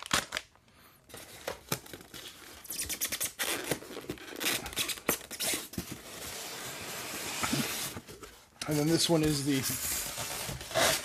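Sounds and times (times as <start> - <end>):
packaging crinkles and clicks: 0.0 - 0.6
cardboard box rustling and scraping: 5.7 - 8.4.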